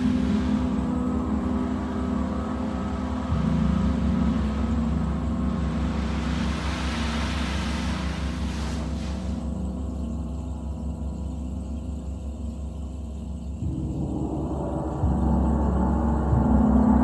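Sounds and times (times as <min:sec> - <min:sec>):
gongs droning: 0:00.0 - 0:07.3, 0:13.6 - 0:17.0
shimmering hiss: 0:00.0 - 0:17.0.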